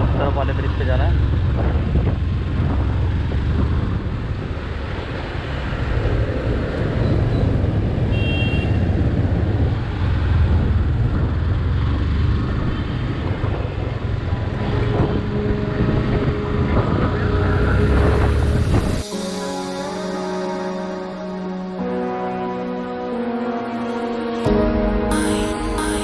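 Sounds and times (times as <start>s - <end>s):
wind buffeting microphone: 0.0s - 19.1s
motorcycle engine and road rumble: 0.0s - 19.3s.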